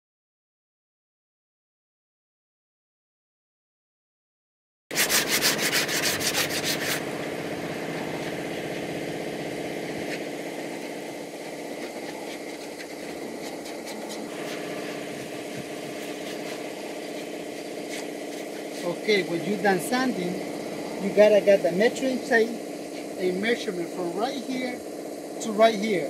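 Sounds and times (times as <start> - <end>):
sandpaper rubbing: 4.9 - 8.5, 9.8 - 24.5
steady low hum: 4.9 - 26.0.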